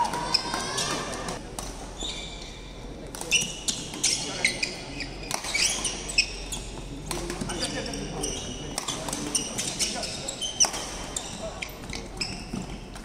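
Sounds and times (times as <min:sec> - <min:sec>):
sneakers squeaking on wooden floor: 0:02.0 - 0:02.6, 0:03.2 - 0:06.9, 0:07.5 - 0:12.9
racket hitting shuttlecock: 0:10.6 - 0:11.2.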